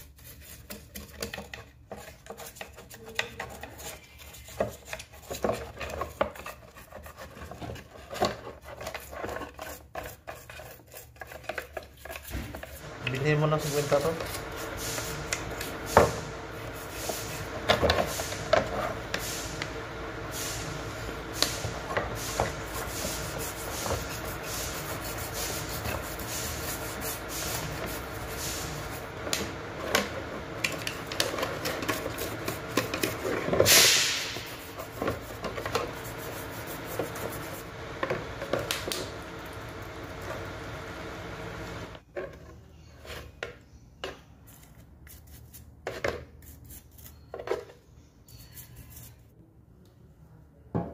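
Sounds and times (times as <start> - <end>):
toothbrush scrubbing plastic: 0.0 - 15.9, 21.3 - 29.3, 30.5 - 37.8.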